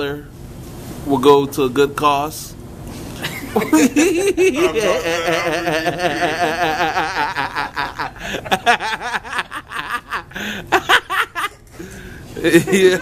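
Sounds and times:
men laughing: 3.2s - 13.0s
man's wavering vocal sound: 4.5s - 8.3s.

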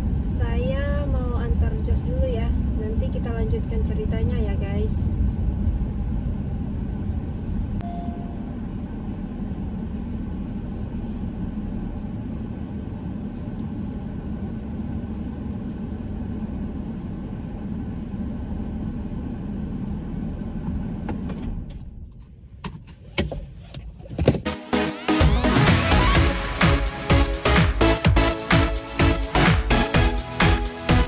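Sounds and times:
car engine rumble inside cabin: 0.0s - 24.5s.

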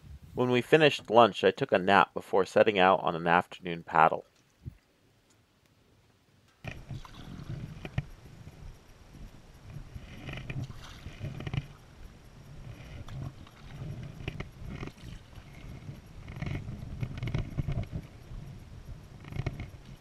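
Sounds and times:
paddle splashing in water: 6.8s - 7.9s, 10.6s - 11.4s
low rumble: 6.9s - 20.0s.

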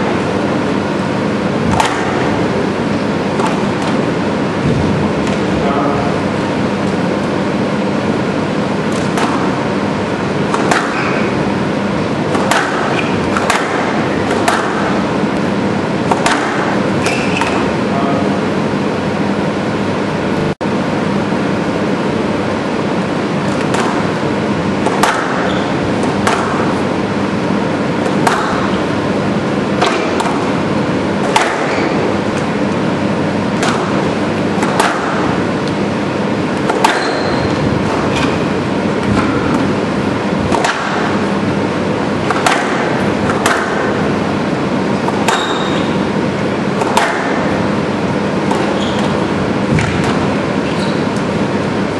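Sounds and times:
squash ball striking wall: 0.0s - 5.5s, 8.7s - 17.8s, 23.1s - 50.7s
shoes squeaking on wooden floor: 48.6s - 49.3s, 50.6s - 51.1s.

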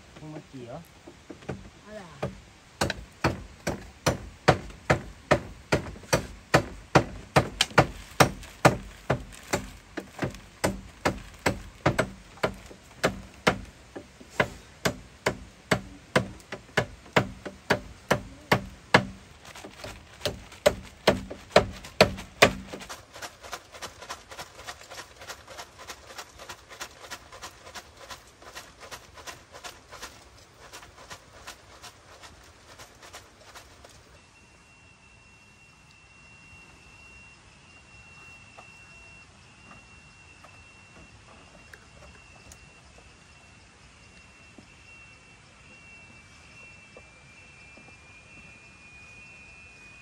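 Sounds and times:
sharp knocking strikes: 1.0s - 19.2s.

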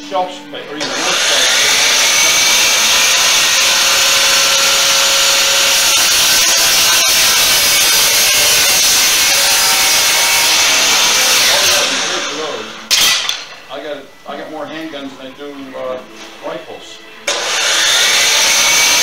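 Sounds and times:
chop saw cutting wood: 0.8s - 13.6s, 17.3s - 19.0s.

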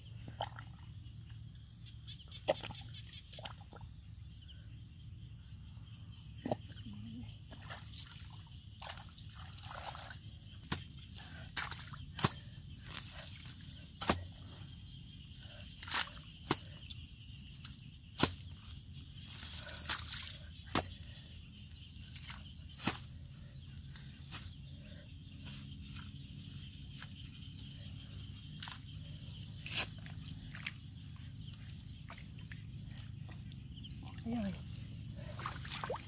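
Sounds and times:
hoe striking wet mud: 11.6s - 14.4s, 15.8s - 16.8s, 18.2s - 18.6s, 19.4s - 21.1s.

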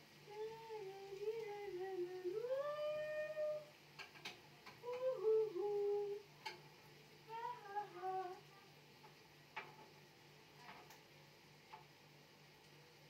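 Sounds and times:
woman humming: 0.3s - 3.7s, 4.8s - 6.3s, 7.3s - 8.7s.

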